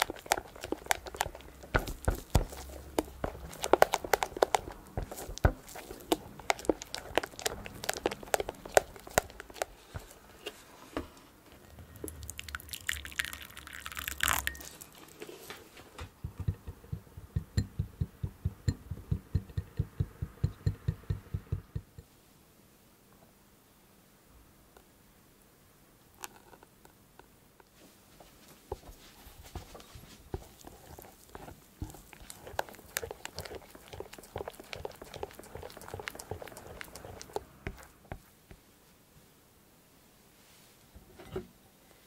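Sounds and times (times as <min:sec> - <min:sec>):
rhythmic stirring: 0:00.0 - 0:10.1, 0:16.2 - 0:22.0, 0:30.3 - 0:38.0
spatula folding mousse in bowl: 0:00.0 - 0:10.8, 0:28.7 - 0:38.7
water pouring into glass bowl: 0:12.0 - 0:15.2.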